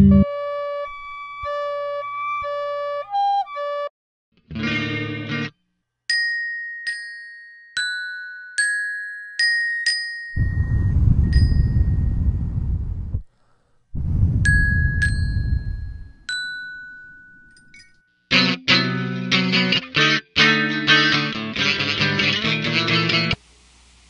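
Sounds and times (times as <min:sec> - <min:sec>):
glockenspiel notes ringing: 0:06.1 - 0:10.6, 0:14.5 - 0:18.0
loud low rumbling noise: 0:10.4 - 0:13.2, 0:14.0 - 0:16.2.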